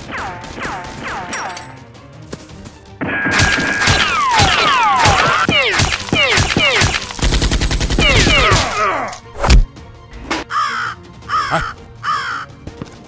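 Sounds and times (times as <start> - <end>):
rapid machine-gun-like rattle: 5.8 - 8.3.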